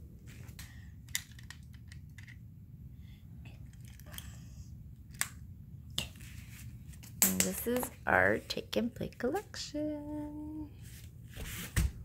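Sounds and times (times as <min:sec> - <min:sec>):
faint low room hum: 0:00.0 - 0:12.0.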